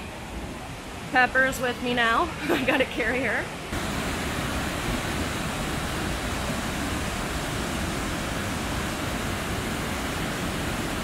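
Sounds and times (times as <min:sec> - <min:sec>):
waterfall rushing: 0:03.6 - 0:11.0.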